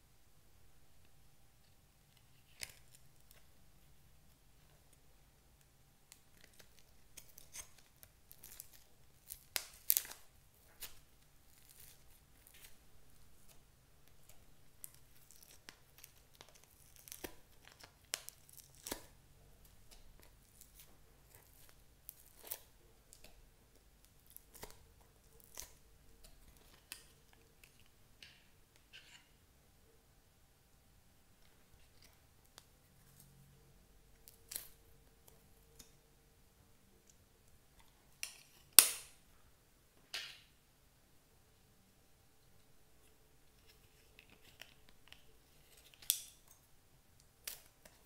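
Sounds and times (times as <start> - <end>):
sticky slime crackling and tearing: 6.1 - 12.8, 14.2 - 19.2, 19.8 - 23.3.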